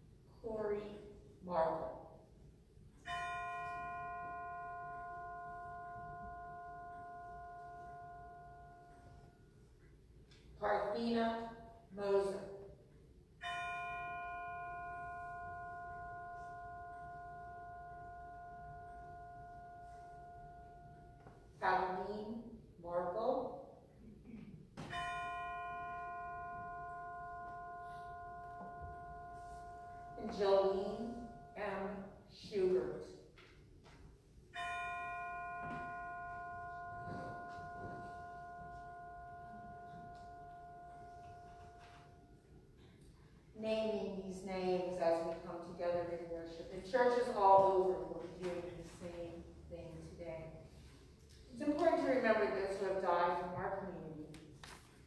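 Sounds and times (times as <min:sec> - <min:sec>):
bell ringing: 0:03.0 - 0:09.5, 0:13.4 - 0:22.4, 0:24.8 - 0:33.0, 0:34.6 - 0:44.0.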